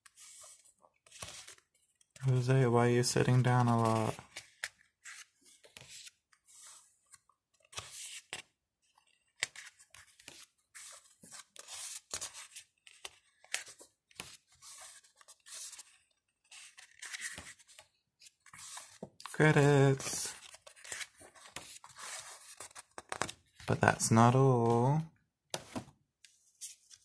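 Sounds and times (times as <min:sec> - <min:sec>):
book pages turning: 0:00.0 - 0:02.4, 0:03.2 - 0:27.0.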